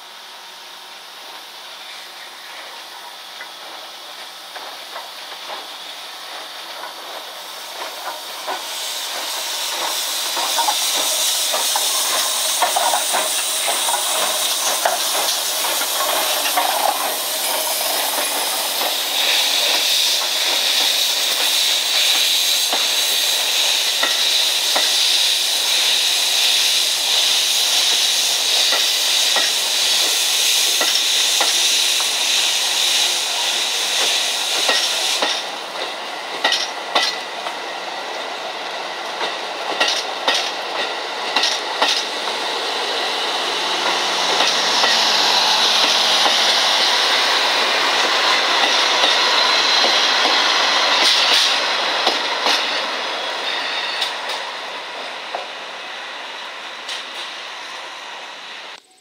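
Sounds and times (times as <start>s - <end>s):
steam locomotive hissing: 0.0s - 59.0s
wheels clicking on rails: 6.3s - 25.0s, 43.3s - 52.9s.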